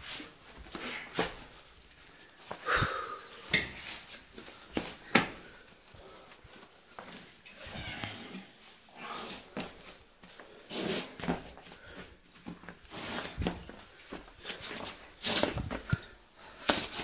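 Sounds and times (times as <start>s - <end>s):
breathing and sniffing: 2.1s - 3.5s.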